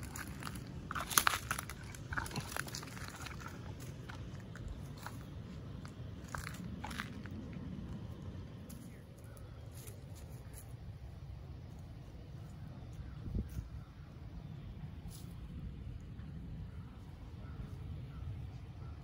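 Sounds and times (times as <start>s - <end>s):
horse tearing and chewing grass: 0.0s - 7.8s.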